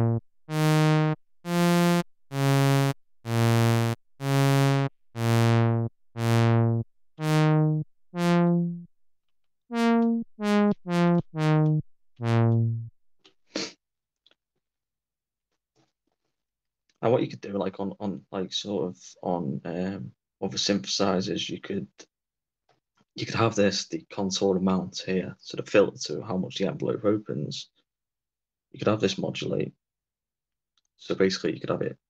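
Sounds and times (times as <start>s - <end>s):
synthesizer bass notes: 0.0s - 8.9s, 9.7s - 12.9s.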